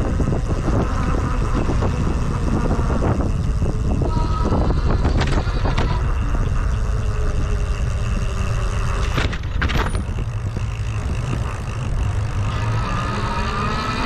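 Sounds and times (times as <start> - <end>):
e-bike low rumble: 0.0 - 14.0
rising whine: 0.0 - 14.0
rattles: 3.0 - 14.0.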